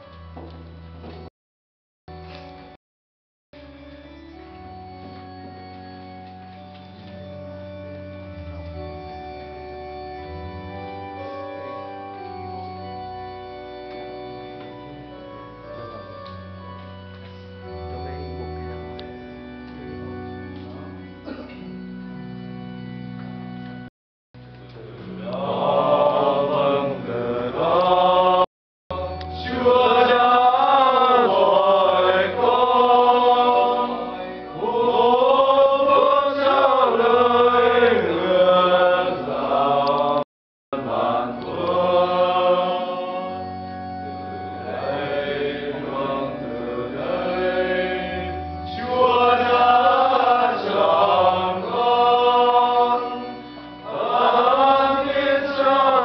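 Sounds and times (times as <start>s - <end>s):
group singing a hymn: 24.9s - 56.0s.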